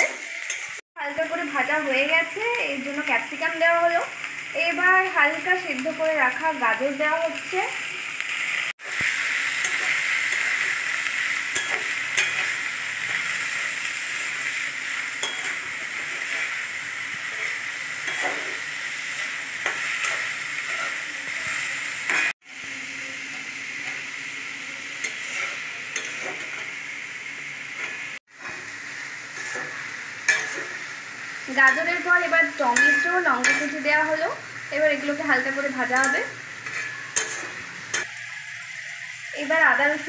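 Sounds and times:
metal spoon scraping pan: 0.0 - 0.8, 9.5 - 10.8, 11.4 - 13.7, 15.1 - 22.3, 25.0 - 26.8, 29.4 - 30.8, 32.7 - 33.8, 35.6 - 38.1
vegetables sizzling in oil: 0.0 - 40.0.

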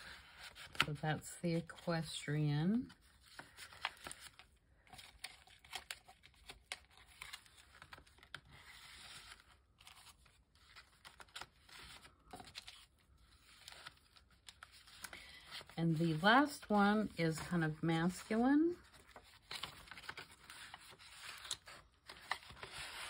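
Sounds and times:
paper rustling and sliding: 7.0 - 16.7, 17.4 - 23.0.

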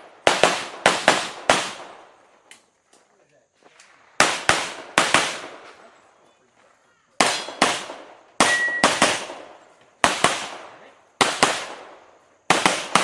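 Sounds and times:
pistol shots with echo: 0.0 - 2.2, 4.2 - 6.0, 7.2 - 13.0.

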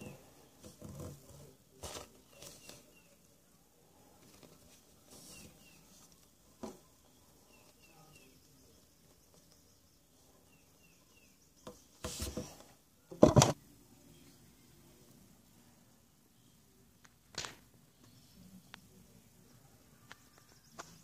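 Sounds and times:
rubbing and knocking of foam toys: 0.0 - 3.3, 4.0 - 9.8, 11.6 - 13.6.

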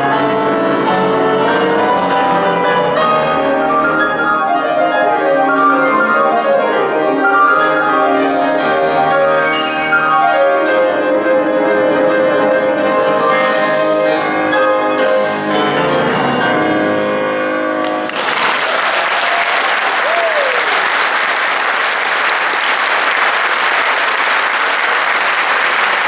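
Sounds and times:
classical piano piece: 0.0 - 18.2
audience applause: 17.8 - 26.0.

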